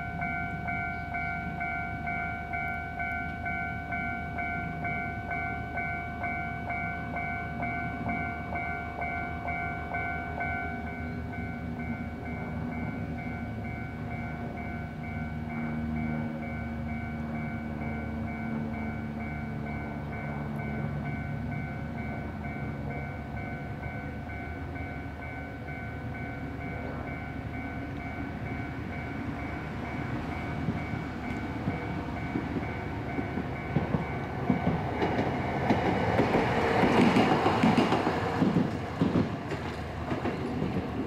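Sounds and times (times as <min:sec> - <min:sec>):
level-crossing alarm bell: 0:00.0 - 0:35.7
tram passing: 0:00.0 - 0:41.0
wheels clicking over rail joints: 0:29.8 - 0:41.0.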